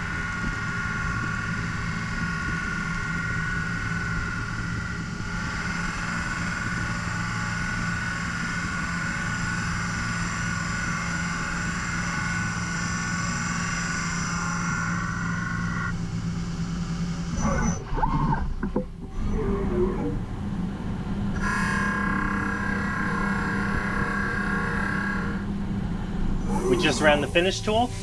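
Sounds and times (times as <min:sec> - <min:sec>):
machine whine: 0:00.0 - 0:28.0
low hum: 0:14.4 - 0:28.0.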